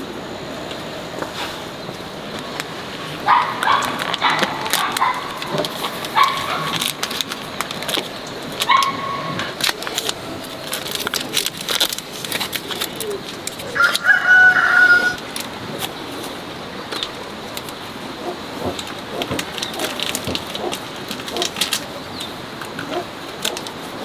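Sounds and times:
mushrooms picked off plastic bags: 2.3s - 17.7s
rooster crowing: 13.6s - 15.3s
rooster short calls: 13.7s - 15.2s.

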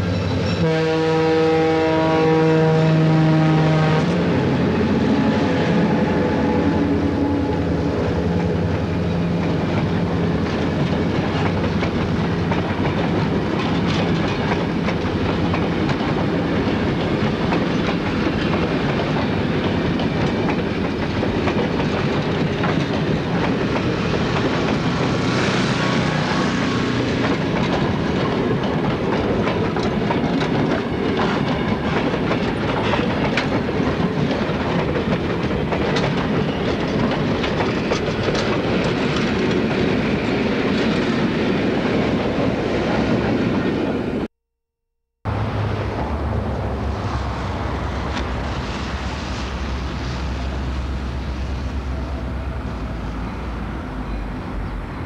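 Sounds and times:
diesel locomotive engines droning: 0.0s - 44.3s, 45.3s - 55.0s
train horn chord: 0.5s - 7.8s
train wheels clicking on rails: 4.0s - 44.0s, 45.5s - 54.9s.

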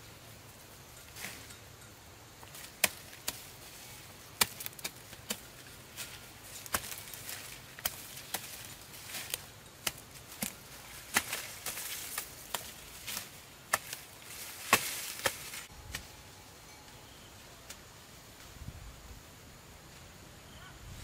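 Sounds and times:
dry corn stalks snapping: 2.4s - 16.1s.

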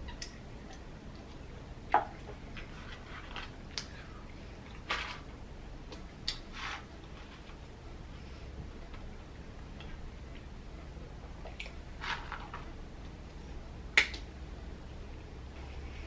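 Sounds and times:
steady low hum: 0.0s - 16.0s
paper cup and carton rustling: 2.6s - 3.6s, 4.8s - 5.3s, 12.0s - 12.7s.

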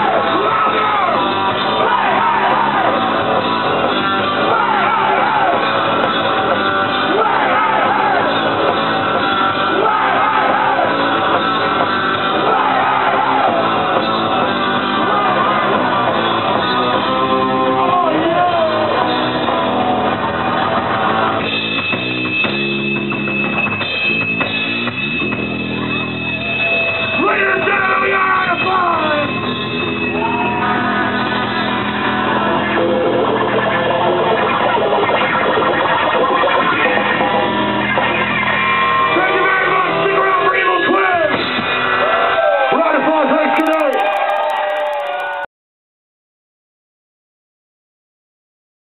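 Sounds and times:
sung and shouted vocals: 0.0s - 3.2s, 4.4s - 5.8s, 7.0s - 8.5s, 9.7s - 11.1s
distorted electric guitars: 0.0s - 45.4s
steady high tone: 22.4s - 33.3s.

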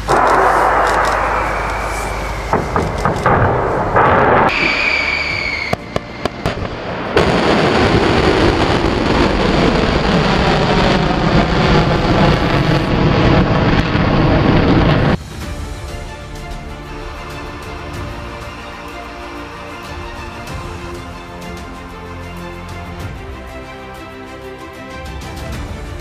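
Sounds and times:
sharp cracks: 0.0s - 7.3s
falling whistle-like tone: 0.9s - 3.1s, 4.5s - 6.3s.

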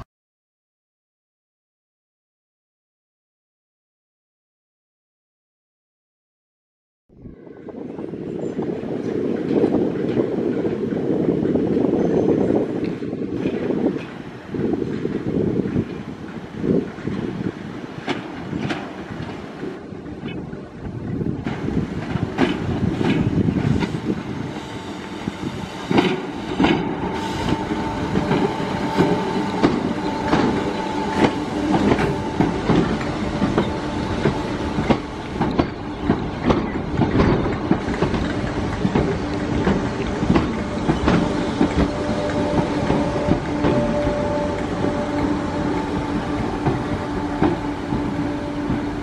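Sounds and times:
train rumble: 7.2s - 49.0s
train wheels clattering over joints: 9.3s - 19.7s, 21.4s - 49.0s.

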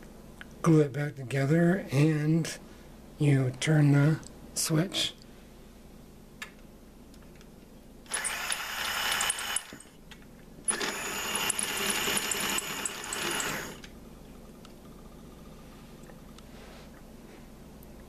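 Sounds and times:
toy motor whirring and rattling: 8.1s - 9.9s, 10.7s - 13.8s.

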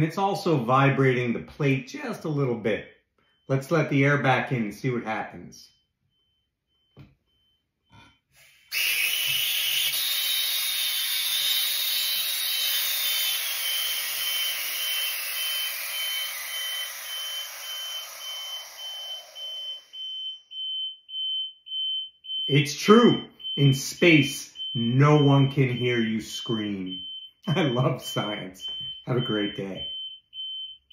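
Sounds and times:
electronic beeper pulsing: 11.4s - 30.8s.

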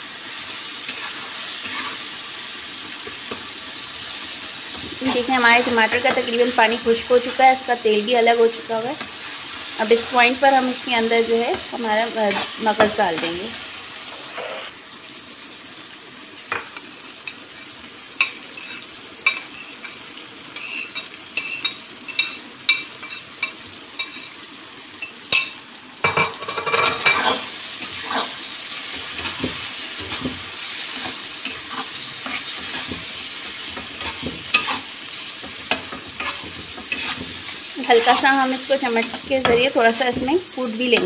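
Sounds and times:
spices sizzling in a wok: 0.0s - 41.0s
metal spatula scraping a pan: 0.8s - 2.1s, 12.0s - 13.4s, 14.1s - 14.7s, 20.6s - 22.4s, 26.2s - 41.0s.

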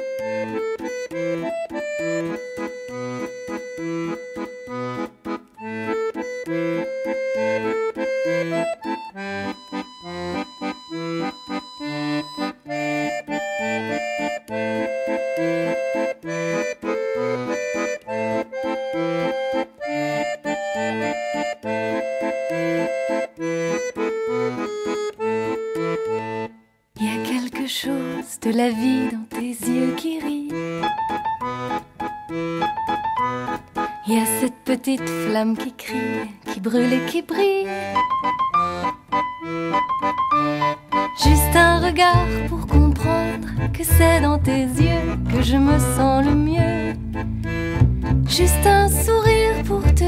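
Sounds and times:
accordion playing oom-pah tune: 0.0s - 50.0s.

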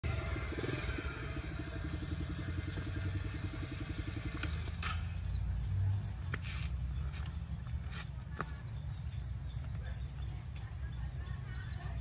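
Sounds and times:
mini bike engine idling: 0.0s - 6.2s.

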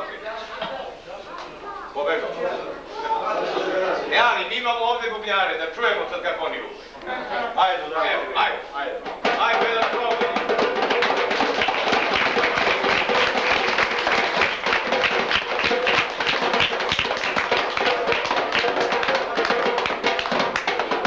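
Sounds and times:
hand drums slaps and taps: 9.0s - 21.0s.

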